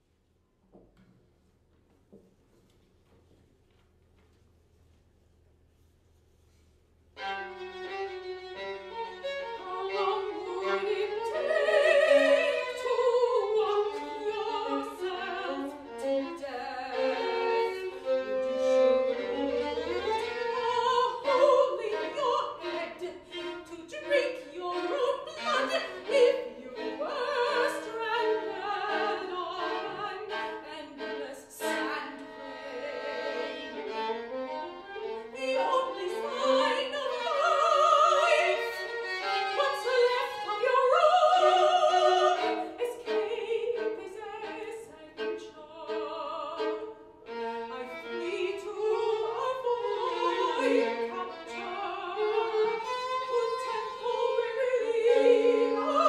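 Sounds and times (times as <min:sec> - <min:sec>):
solo violin: 0:07.1 - 0:56.0
woman singing operatically: 0:09.6 - 0:15.7, 0:16.4 - 0:17.3, 0:20.4 - 0:33.5, 0:35.3 - 0:38.8, 0:39.6 - 0:47.0, 0:47.7 - 0:52.6, 0:53.2 - 0:56.0.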